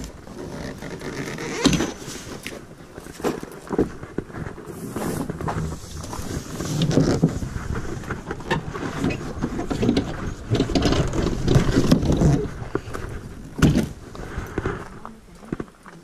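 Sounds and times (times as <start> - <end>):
canoe hull rubbing and knocking: 0.0 - 15.0
canoe thumping onto gravel: 1.5 - 2.5, 8.1 - 14.0.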